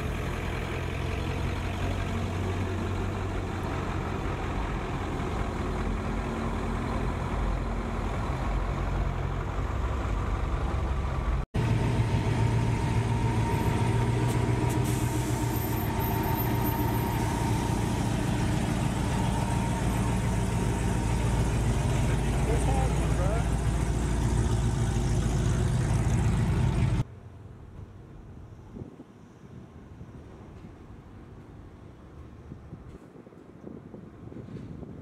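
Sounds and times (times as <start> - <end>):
truck engine running steadily: 0.0 - 27.0
pickup truck engine running: 15.9 - 27.0.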